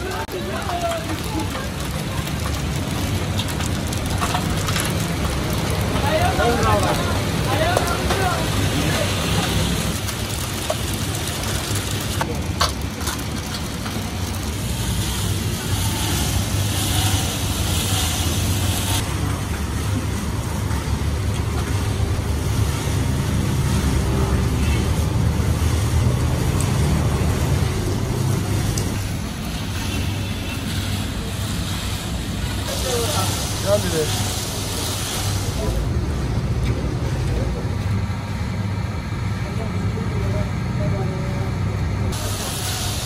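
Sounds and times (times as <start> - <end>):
peanuts rattling in drum: 0.1 - 15.7.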